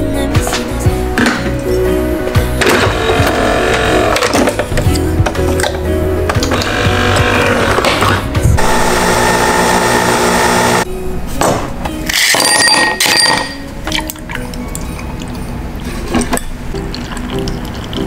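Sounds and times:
coffee machine humming: 2.6s - 4.2s, 6.5s - 8.0s, 8.6s - 10.8s
glassware clinks: 12.2s - 13.7s.

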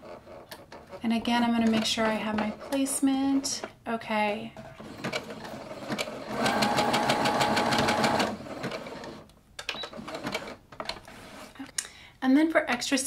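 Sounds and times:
sewing machine stitching: 4.6s - 10.6s.

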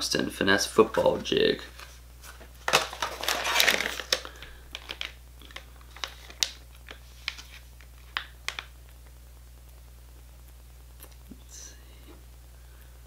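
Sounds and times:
plastic packaging rustling: 0.9s - 8.7s.

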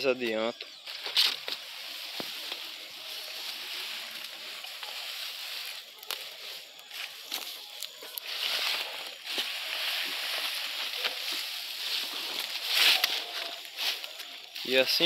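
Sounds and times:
rustling of dry vegetation: 0.0s - 15.0s
twigs snapping: 5.8s - 11.5s, 12.1s - 14.6s.

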